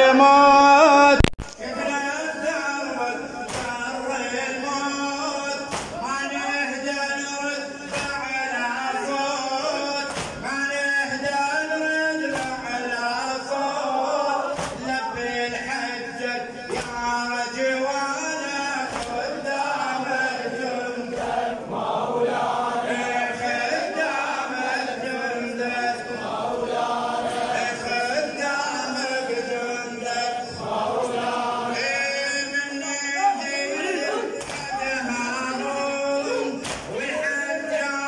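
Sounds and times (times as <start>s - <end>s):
men chanting a lament: 0.0s - 38.0s
hands slapping chests: 3.5s - 3.8s, 5.7s - 6.0s, 10.1s - 10.4s, 12.3s - 12.6s, 14.6s - 14.9s, 18.9s - 19.2s, 34.4s - 34.7s, 36.6s - 37.0s.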